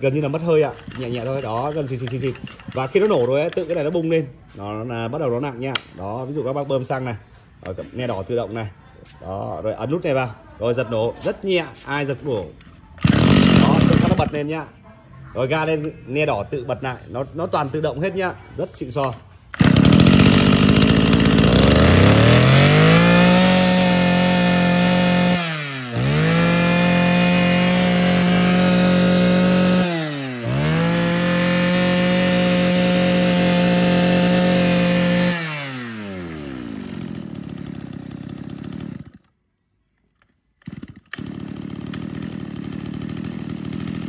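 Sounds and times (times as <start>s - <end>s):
brush cutter engine revving: 0.0s - 4.3s, 12.3s - 14.6s, 18.9s - 39.3s, 40.6s - 44.0s.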